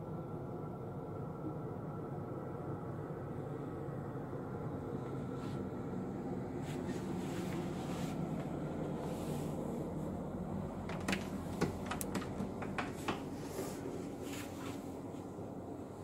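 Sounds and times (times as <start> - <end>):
low hum: 0.0 - 16.0
wooden door clicking and opening: 10.8 - 13.3.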